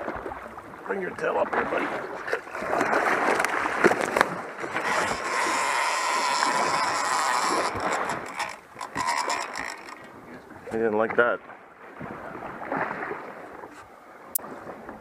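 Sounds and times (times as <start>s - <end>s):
shark splashing and thrashing: 1.6s - 10.2s
fishing reel drag whining: 3.4s - 10.3s.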